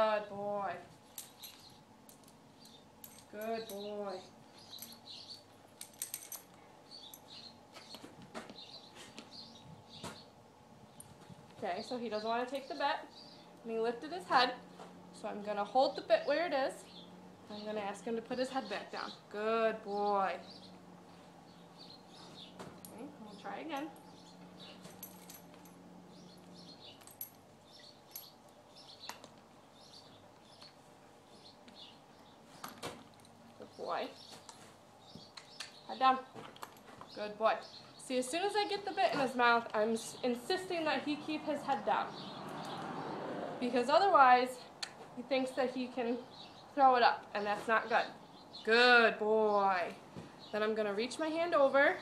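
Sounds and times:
small birds chirping: 0.0 - 52.0
metallic clinks of horse bridle: 1.0 - 3.9, 4.5 - 7.5, 23.7 - 29.3.

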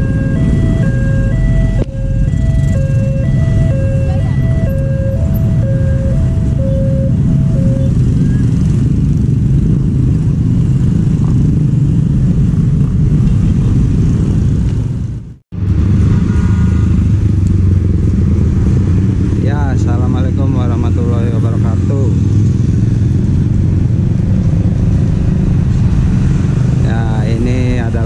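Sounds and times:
level-crossing two-tone alarm: 0.0 - 8.4
motorcycle engines running: 0.0 - 28.0.

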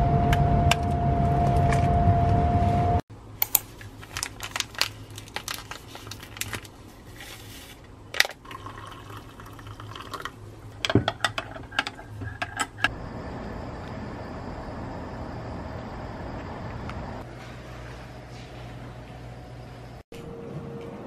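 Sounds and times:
water poured into glass mug: 8.4 - 10.4.

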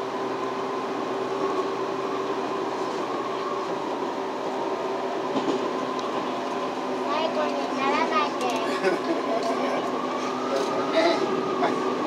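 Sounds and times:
train running rumble: 0.0 - 12.0.

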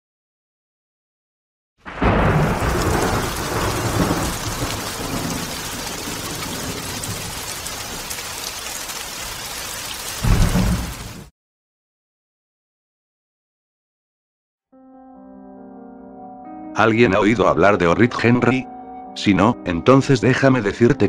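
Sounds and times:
thunder rumbling: 1.8 - 8.5, 10.1 - 11.3
steady rain: 1.9 - 11.3.

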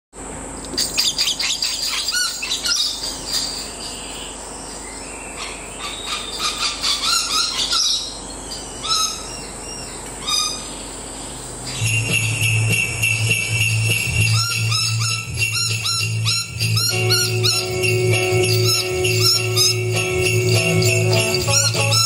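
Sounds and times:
bird chirping and calling: 0.7 - 22.0
music with jingle bells: 11.7 - 22.0.

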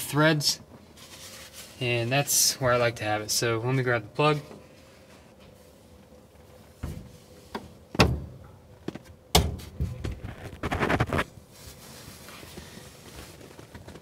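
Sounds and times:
rustling and clatter of handling: 0.6 - 2.1, 8.4 - 14.0.

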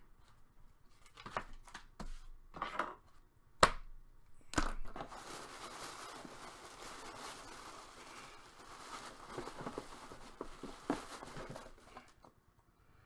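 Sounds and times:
tissue paper rustling: 4.8 - 12.2.

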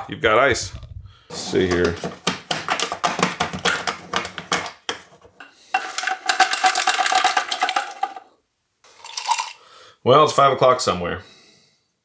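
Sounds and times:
ice cubes clattering into glass jar: 5.7 - 8.2, 8.9 - 9.6.

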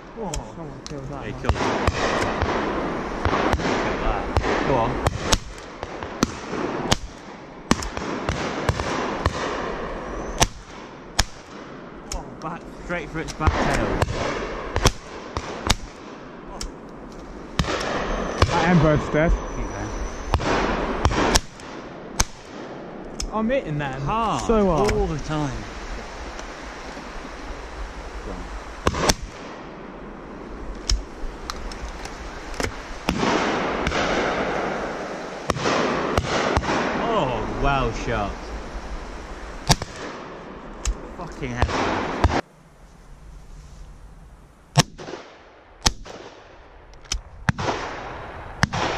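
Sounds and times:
shotgun shots: 1.4 - 9.8, 10.4 - 11.9, 13.4 - 16.8, 17.6 - 19.3, 20.2 - 23.0, 28.8 - 29.9, 32.6 - 37.1, 39.6 - 41.0, 41.6 - 42.4, 44.8 - 46.6, 47.5 - 48.9.

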